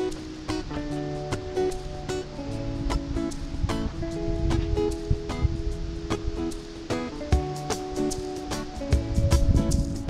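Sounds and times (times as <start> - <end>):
light regular beat: 0.0 - 10.0
plucked strings: 0.0 - 10.0.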